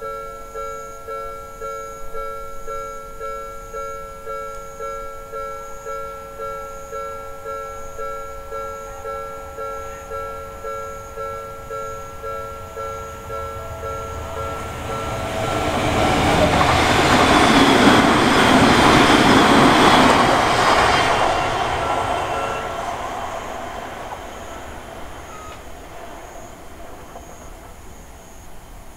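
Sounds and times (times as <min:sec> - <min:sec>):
level crossing warning bell: 0:00.0 - 0:28.9
train wheels rushing on rails: 0:06.1 - 0:28.9.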